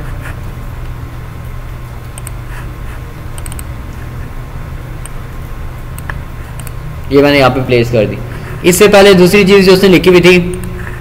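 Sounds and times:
steady low hum: 0.0 - 11.0
computer mouse clicks: 2.1 - 2.4, 3.3 - 3.7, 5.9 - 6.8.

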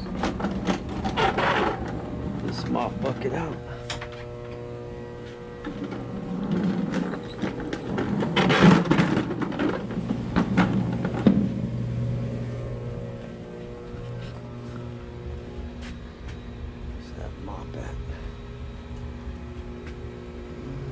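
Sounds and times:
mop bucket rolling rattle: 0.0 - 3.3, 5.6 - 12.2
steady hum: 0.0 - 20.9.

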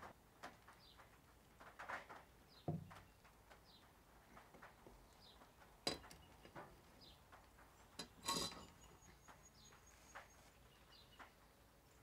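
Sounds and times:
faint bird chirps: 8.6 - 12.0.

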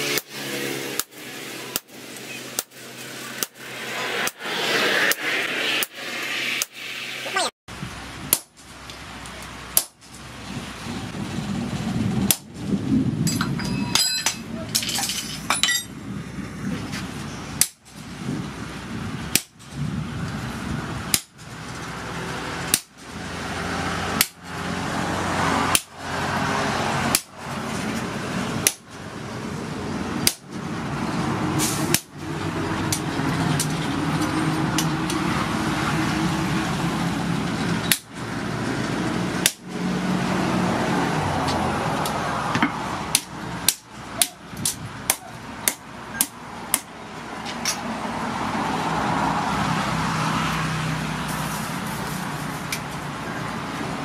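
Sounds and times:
hammer striking hot metal on anvil: 42.6 - 46.9.

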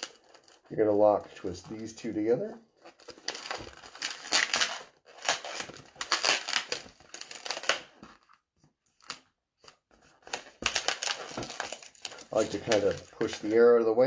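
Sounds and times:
faint handling sounds: 0.0 - 3.8, 8.0 - 14.0
balloon squeaking and rubbing: 0.0 - 8.0, 10.2 - 13.7.

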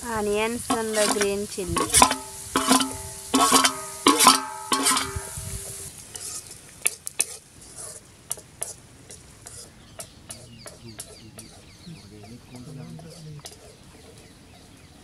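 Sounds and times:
onions sizzling in pan: 0.0 - 9.7
steel ladle clanging on metal: 0.6 - 5.9.

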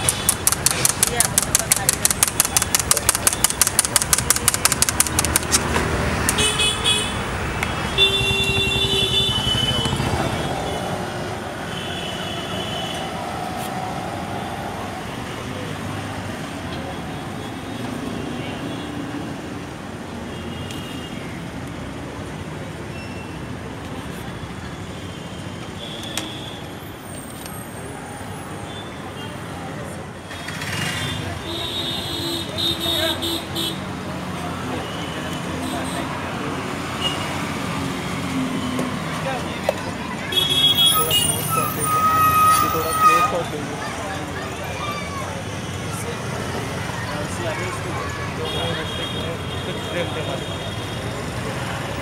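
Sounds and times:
knife chopping cucumber: 0.0 - 5.7
sharp click: 0.0 - 6.4
street traffic noise: 0.0 - 52.0
vehicle horn honking: 6.3 - 10.4, 40.3 - 43.5.

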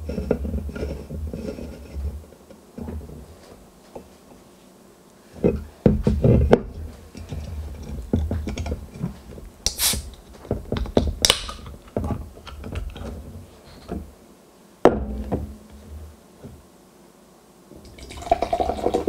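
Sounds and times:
hands knocking and rubbing a can: 5.4 - 13.2
can cracking open: 9.6 - 10.2, 10.8 - 11.7.

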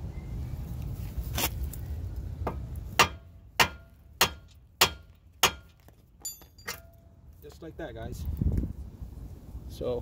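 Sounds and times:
hammer banging on steel: 2.5 - 7.0.

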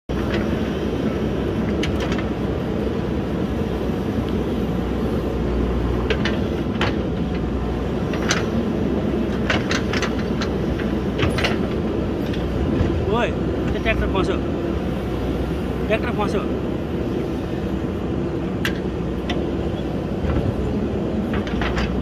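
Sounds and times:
diesel engine running: 0.1 - 22.0
sharp clicks and knocks: 1.6 - 2.4, 6.0 - 7.5, 8.1 - 8.6, 9.2 - 13.0, 18.6 - 19.5, 21.2 - 22.0.

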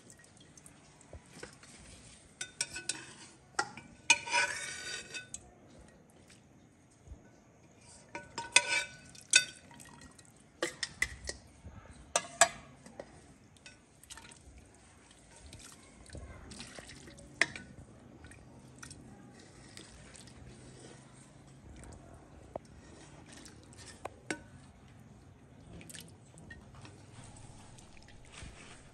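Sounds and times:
broth pouring and dripping: 0.0 - 3.0, 7.7 - 12.2, 12.9 - 28.9
metal ladle clinking on steel pot: 2.4 - 5.4, 8.1 - 9.7, 10.6 - 11.4, 12.1 - 13.9, 17.4 - 17.8, 23.8 - 24.7.

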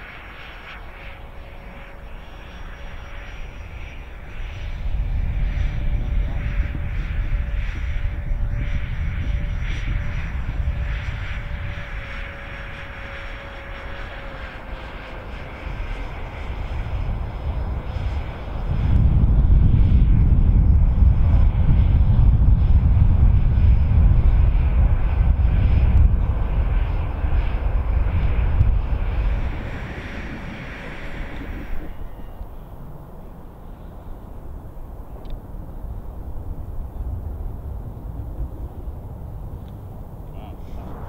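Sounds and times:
faint electric fan whine: 0.0 - 41.0
loud low rumble: 18.4 - 32.8, 40.1 - 41.0.

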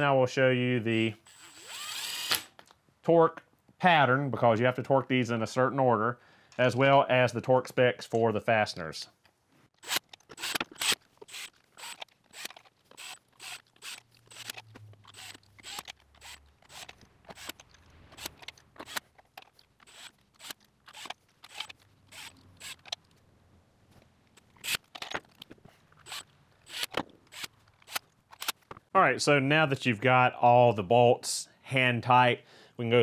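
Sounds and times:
sharp metallic clicks of hand tools: 9.8 - 23.1, 24.4 - 28.8.

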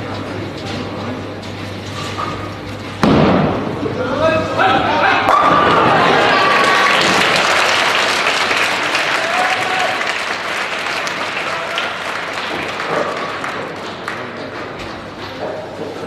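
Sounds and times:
spectators applauding: 5.9 - 14.8.

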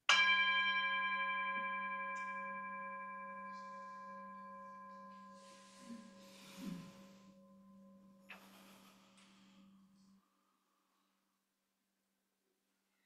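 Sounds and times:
singing bowl ringing: 0.1 - 8.3.

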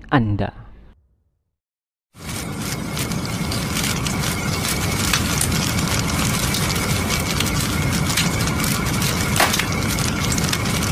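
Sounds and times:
fire crackles: 2.1 - 10.9
fire rumbling: 2.1 - 10.9
sharp crack: 9.4 - 9.8.

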